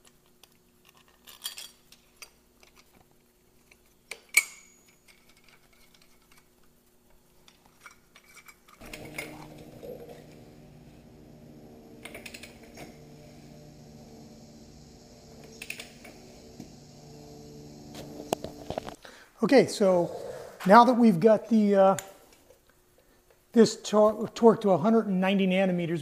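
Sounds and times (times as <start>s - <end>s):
metal parts clinking and tapping: 0.4s - 3.0s, 3.6s - 6.5s
steady multi-tone hum: 8.8s - 20.3s.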